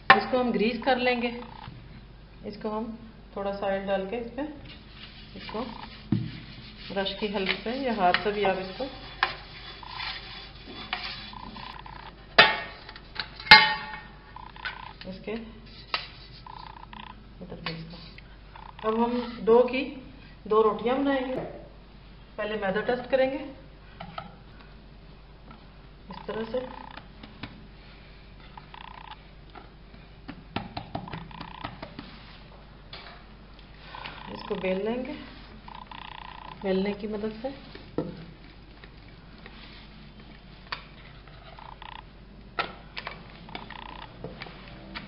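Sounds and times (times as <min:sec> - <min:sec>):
pastry brush strokes: 0:04.7 - 0:11.8, 0:15.6 - 0:16.7, 0:39.4 - 0:40.2
hands patting dough on board: 0:30.3 - 0:32.2.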